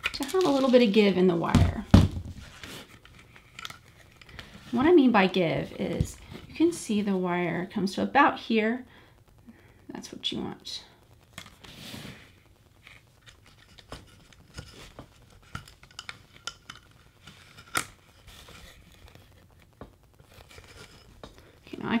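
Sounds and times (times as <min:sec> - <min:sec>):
wire rustling and scraping: 0:11.3 - 0:21.7.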